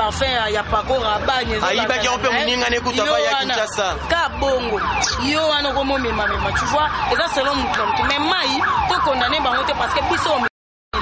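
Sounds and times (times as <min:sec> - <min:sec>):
woman talking: 0:00.0 - 0:02.5, 0:04.0 - 0:11.0
electronic siren falling sweeps: 0:03.1 - 0:10.5.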